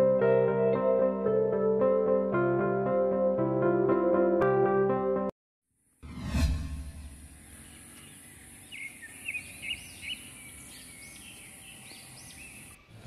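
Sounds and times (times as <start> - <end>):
low rumble: 6.0 - 8.0
outdoor ambience hiss: 7.0 - 13.0
small birds chirping: 7.2 - 13.0.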